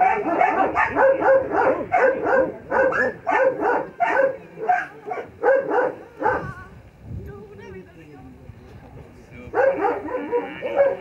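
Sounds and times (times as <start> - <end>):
dog barking rapidly: 0.0 - 6.5, 9.5 - 11.0.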